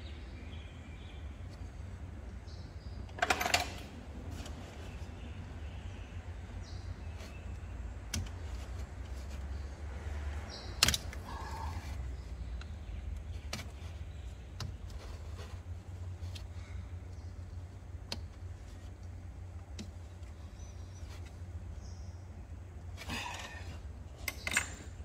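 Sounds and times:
steady low hum: 0:00.0 - 0:25.0
hand tools clicking and knocking: 0:24.2 - 0:25.0.

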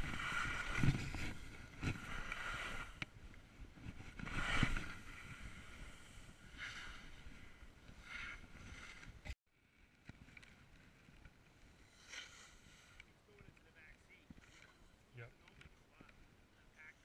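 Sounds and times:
wind noise on microphone: 0:00.0 - 0:07.8
snow scraping swish: 0:03.8 - 0:09.0, 0:11.8 - 0:13.0.

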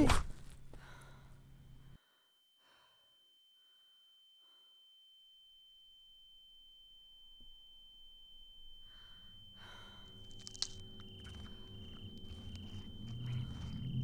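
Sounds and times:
soft breaths: 0:00.4 - 0:03.0, 0:08.8 - 0:10.5
faint high ringing tone: 0:01.4 - 0:14.0.

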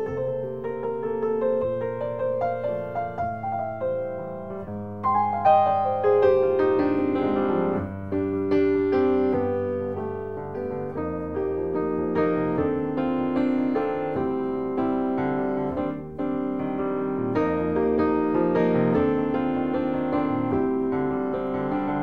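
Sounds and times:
slow piano music: 0:00.0 - 0:22.0.

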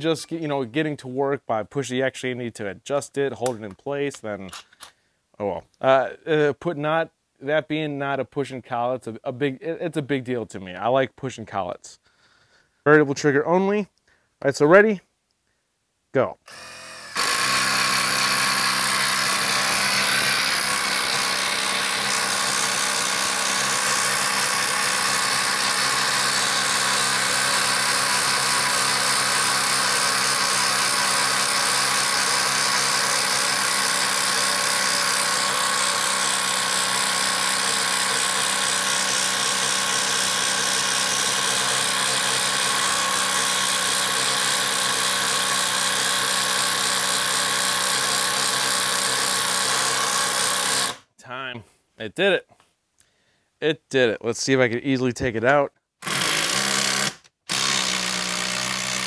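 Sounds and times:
impact driver hammering: 0:16.5 - 0:51.0, 0:56.0 - 0:59.0.

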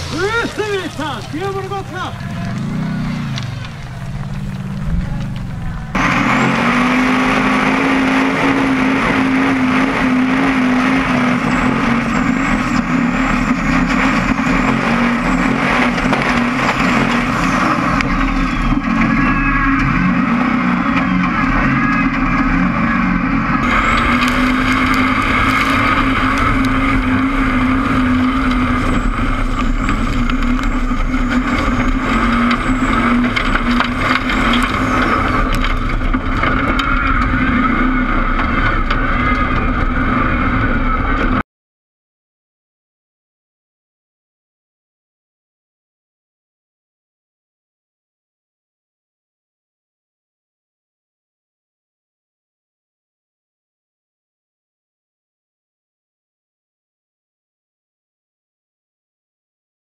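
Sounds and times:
buggy engine running hard: 0:00.0 - 0:41.4
wind: 0:00.0 - 0:41.4.

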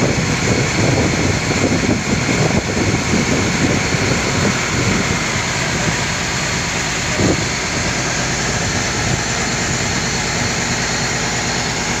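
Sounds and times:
boat engine droning: 0:00.0 - 0:12.0
water noise: 0:00.0 - 0:12.0
wind buffeting microphone: 0:00.0 - 0:12.0.

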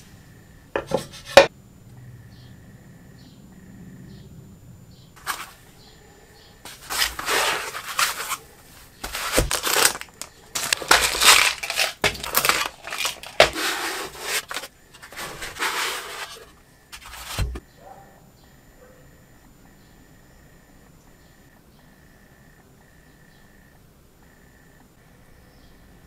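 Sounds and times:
foam trays and plastic bags rustling: 0:00.8 - 0:01.5, 0:05.2 - 0:05.8, 0:06.6 - 0:17.6
trays knocking on wood: 0:00.8 - 0:01.5.

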